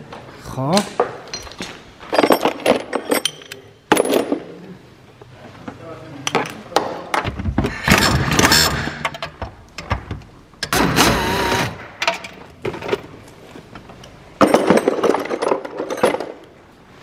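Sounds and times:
pneumatic impact wrench: 7.8s - 9.1s, 10.6s - 12.0s.

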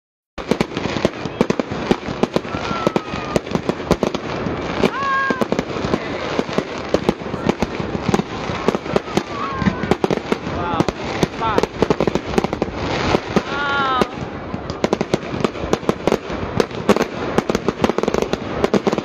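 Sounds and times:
firework whistles: 0.4s - 14.4s
fireworks bangs and crackling: 0.4s - 19.0s.

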